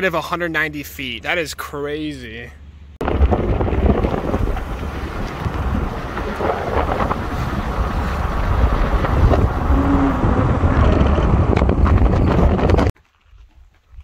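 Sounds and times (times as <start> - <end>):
wind buffeting microphone: 3.0 - 13.0.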